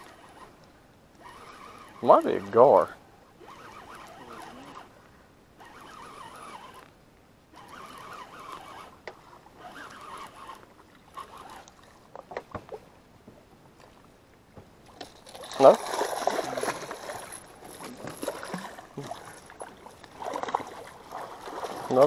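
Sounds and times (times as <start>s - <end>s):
fishing reel gears whirring: 0.0s - 0.6s, 1.2s - 5.0s, 5.6s - 6.9s, 7.5s - 12.0s, 15.6s - 22.0s.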